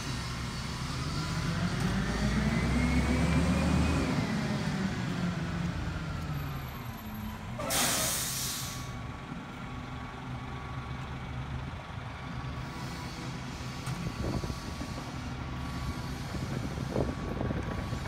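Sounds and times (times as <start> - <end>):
garbage truck engine hum: 0.0 - 18.0
air brake hiss: 7.6 - 9.0.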